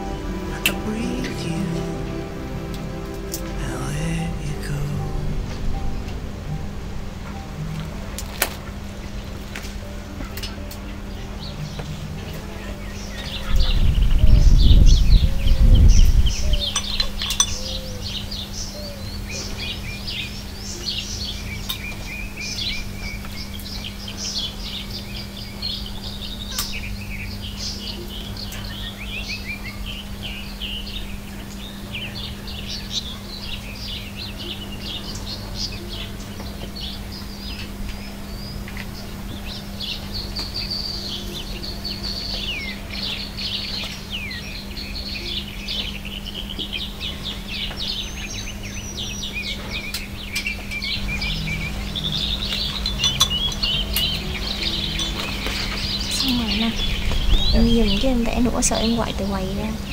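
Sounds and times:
loud low rumble: 0:00.0 - 0:18.3
songbirds chirping and singing: 0:00.0 - 0:59.9.

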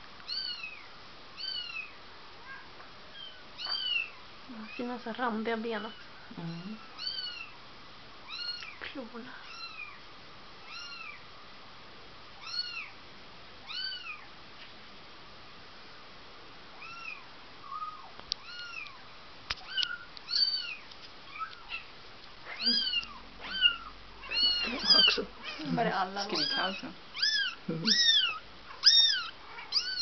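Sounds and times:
kitten mewing: 0:22.5 - 0:30.0.

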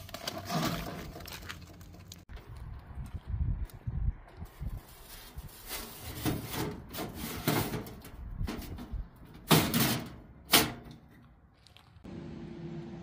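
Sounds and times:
pebbles scraped on metal: 0:00.0 - 0:02.2, 0:05.3 - 0:08.7.

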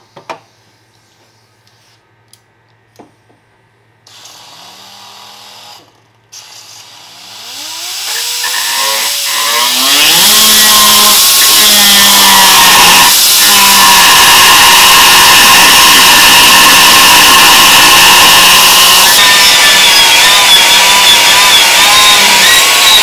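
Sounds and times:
handheld power tool running: 0:06.8 - 0:23.0.

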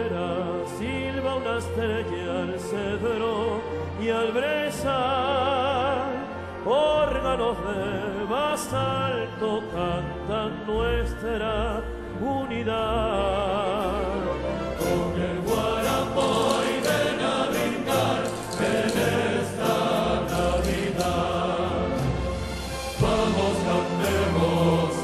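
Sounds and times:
man singing with vibrato: 0:00.0 - 0:22.0
symphony orchestra: 0:00.0 - 0:25.0
choir singing: 0:13.0 - 0:25.0.

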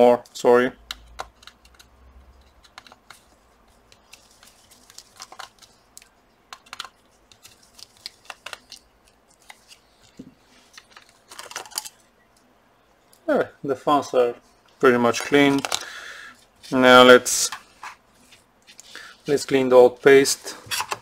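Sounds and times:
plastic parts clicking: 0:10.8 - 0:12.0.

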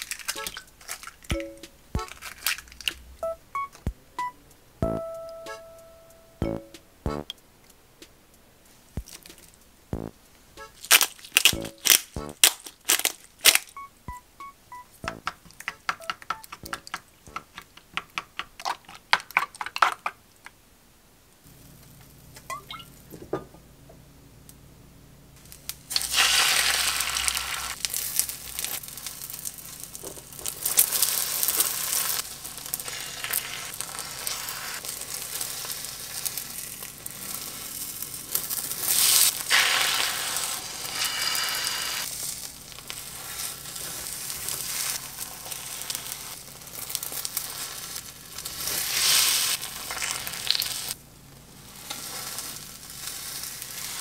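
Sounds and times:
egg sizzling in frying pan: 0:25.4 - 0:51.0, 0:51.6 - 0:54.0.

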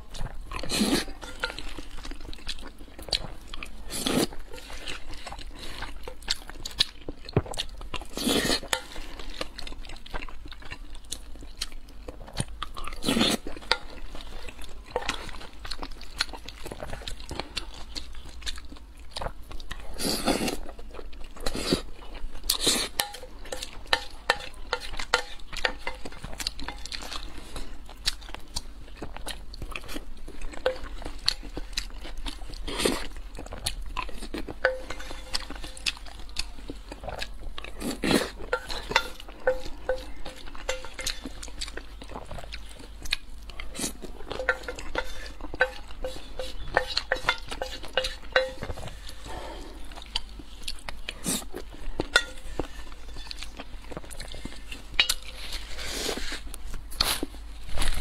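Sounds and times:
close chewing: 0:00.0 - 0:58.0
metal spoon scraping a bowl: 0:34.6 - 0:35.8, 0:38.5 - 0:41.4, 0:44.3 - 0:49.3, 0:52.1 - 0:53.4.

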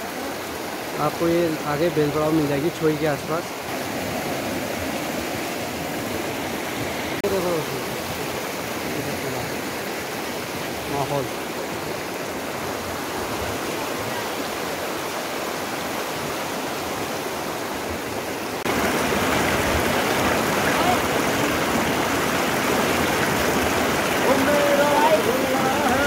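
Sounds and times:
river rushing over stones: 0:00.0 - 0:26.0.

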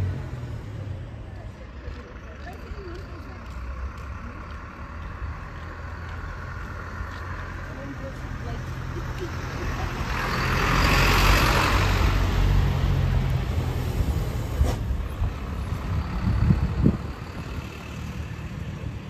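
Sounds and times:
vehicle passing with tyre hiss: 0:04.6 - 0:19.0.

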